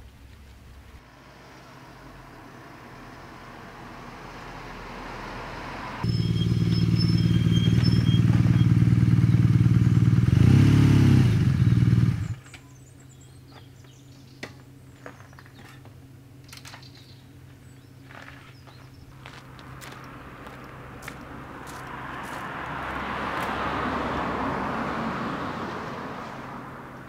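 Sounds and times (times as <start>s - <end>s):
motorcycle engine running: 6.0s - 12.5s.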